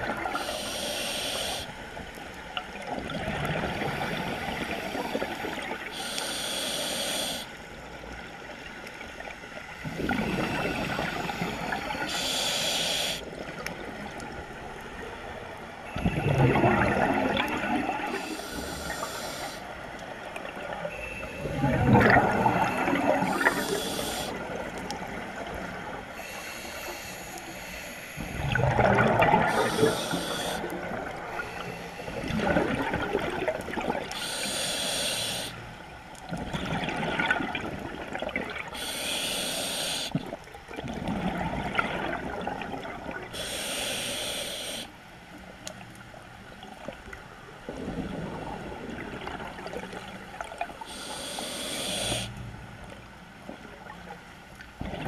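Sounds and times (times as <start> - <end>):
hissing regulator inhale: 0.2 - 2.2, 4.0 - 7.6, 10.5 - 13.4, 18.0 - 19.7, 22.5 - 24.4, 26.1 - 28.7, 29.4 - 32.4, 34.1 - 35.7, 38.7 - 40.2, 43.3 - 45.0, 50.8 - 52.4
bubbling exhale underwater: 9.8 - 11.8, 15.9 - 19.2, 20.6 - 25.3, 28.2 - 31.5, 32.1 - 34.1, 54.8 - 55.0.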